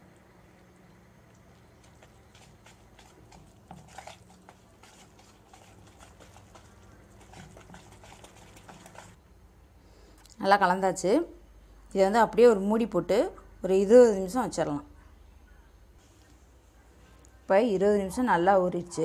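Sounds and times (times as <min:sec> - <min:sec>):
whisk scraping bowl: 0:01.8 - 0:09.2.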